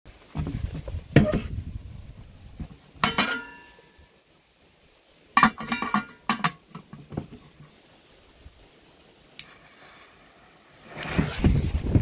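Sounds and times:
lid clinking on urn: 0:03.0 - 0:03.8, 0:05.4 - 0:06.6
metal urn clinking: 0:03.0 - 0:03.9, 0:05.4 - 0:06.9.

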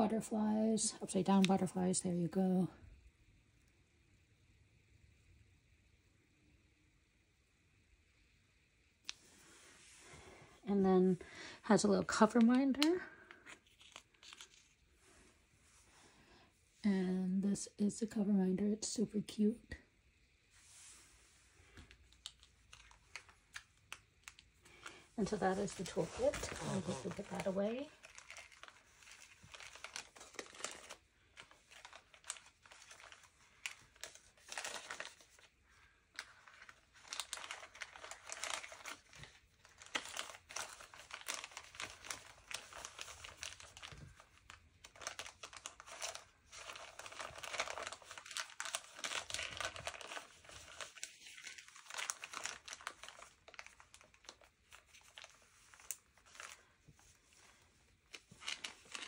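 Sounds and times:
plastic bag crinkling: 0:12.0 - 0:15.0, 0:21.7 - 0:59.0.

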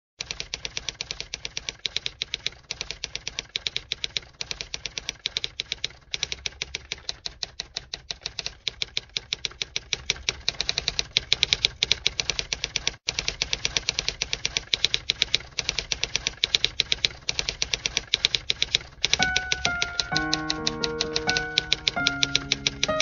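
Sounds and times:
typewriter keys clicking: 0:14.0 - 0:23.0.

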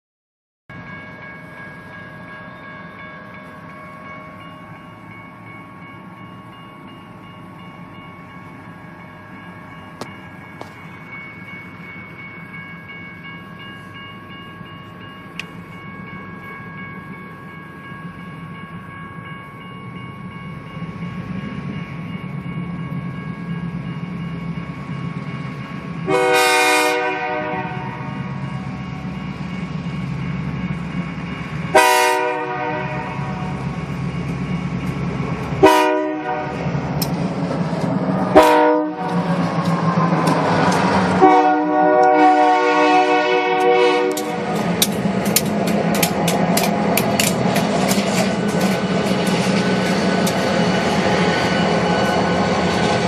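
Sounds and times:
locomotive engine rumble: 0:00.8 - 0:53.0
train air horn blast: 0:26.1 - 0:28.1, 0:31.7 - 0:33.5, 0:35.6 - 0:36.6, 0:38.3 - 0:39.2, 0:41.2 - 0:44.5.

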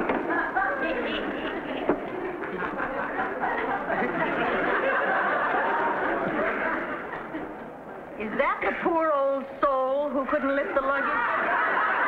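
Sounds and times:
murmur of chatter: 0:00.0 - 0:12.0
people chuckling: 0:00.1 - 0:07.8, 0:10.2 - 0:12.0.

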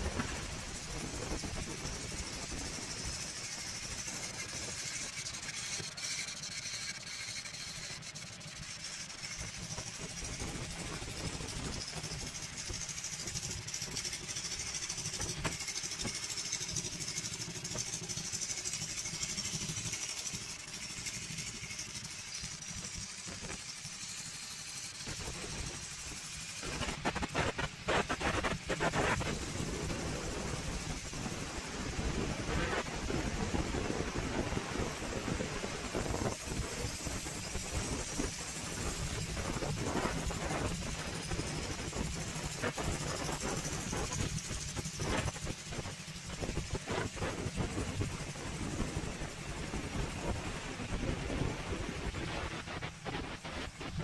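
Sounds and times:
motorcycle engine idling: 0:00.1 - 0:26.6.

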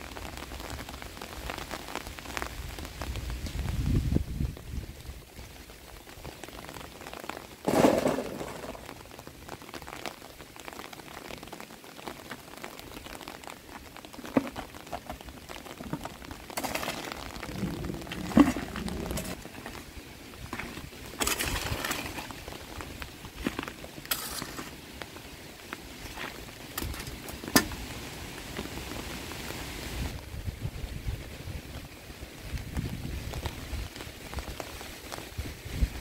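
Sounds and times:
leaves and soil rustling: 0:00.0 - 0:36.0
stones dropped into bucket: 0:07.6 - 0:08.9, 0:15.8 - 0:19.7, 0:20.5 - 0:22.6, 0:23.4 - 0:24.8, 0:26.1 - 0:27.8
hoe scraping earth: 0:16.6 - 0:19.8, 0:20.5 - 0:22.6, 0:23.4 - 0:24.8.

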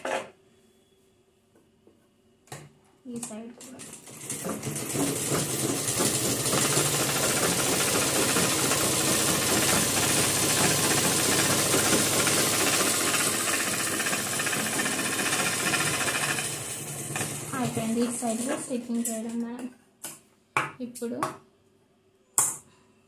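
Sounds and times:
sewing machine stitching: 0:03.8 - 0:18.7.

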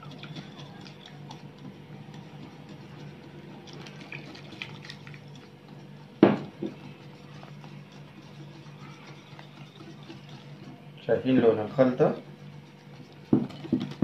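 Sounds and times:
water trickling into bowl: 0:00.0 - 0:05.5.

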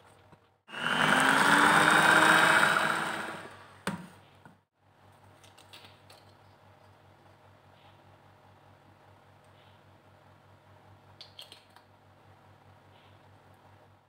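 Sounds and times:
electric hand mixer whine: 0:00.7 - 0:03.7.

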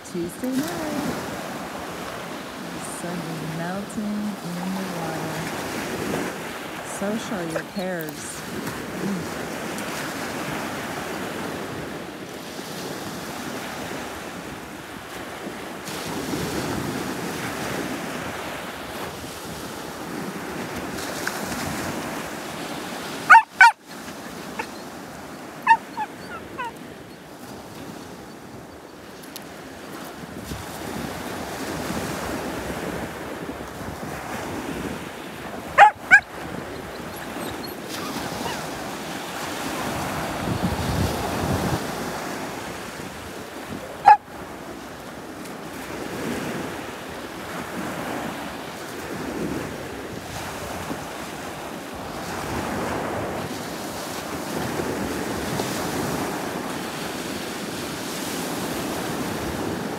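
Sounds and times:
small waves breaking on beach: 0:00.0 - 0:59.9
wind on microphone: 0:00.0 - 0:59.9
sharp pitched yelps: 0:23.3 - 0:24.9, 0:25.6 - 0:26.8, 0:35.8 - 0:38.8, 0:44.0 - 0:44.2.

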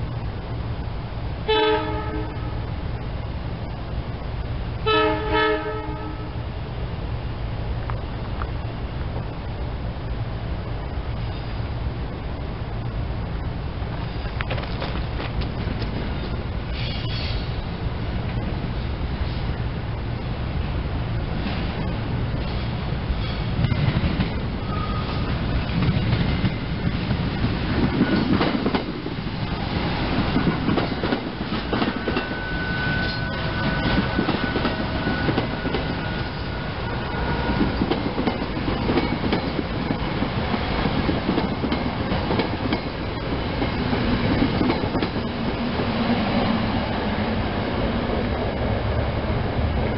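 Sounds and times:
train rumble: 0:00.0 - 0:49.9
wheels clicking over rail joints: 0:13.8 - 0:17.5, 0:22.4 - 0:36.0, 0:37.4 - 0:45.9
thin high whine: 0:31.6 - 0:37.8.

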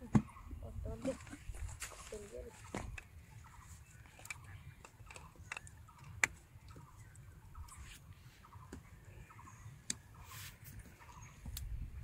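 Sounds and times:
low wind rumble: 0:11.3 - 0:12.0.

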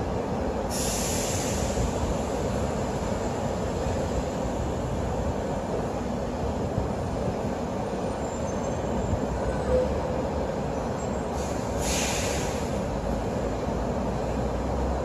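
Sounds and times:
stationary train humming: 0:00.0 - 0:15.0
short hiss: 0:00.7 - 0:02.0, 0:11.4 - 0:12.8.

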